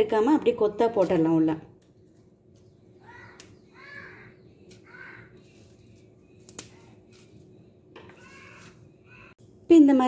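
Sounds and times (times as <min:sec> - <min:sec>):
crow cawing: 0:03.0 - 0:05.4.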